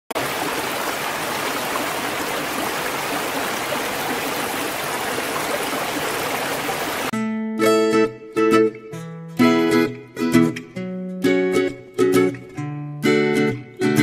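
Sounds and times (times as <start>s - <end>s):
stream rushing over rocks: 0.1s - 7.1s.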